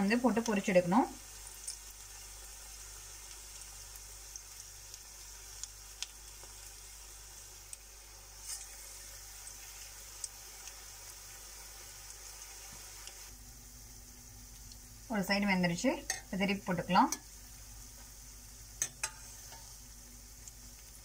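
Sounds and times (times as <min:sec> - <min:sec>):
batter sizzling in hot oil: 0:00.0 - 0:21.0
oil crackling and popping: 0:00.1 - 0:13.4, 0:14.5 - 0:14.9, 0:17.9 - 0:21.0.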